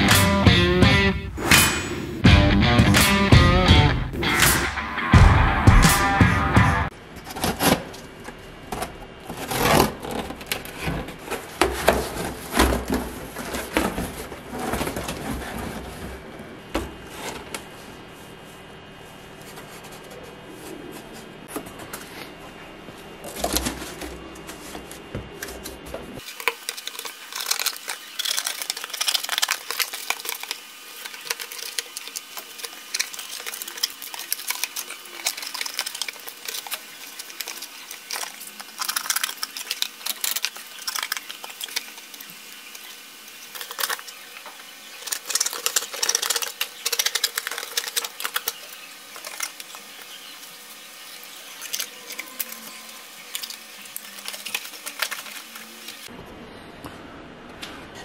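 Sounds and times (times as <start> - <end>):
cardboard crackling and scraping: 7.2 - 18.4, 23.0 - 42.8.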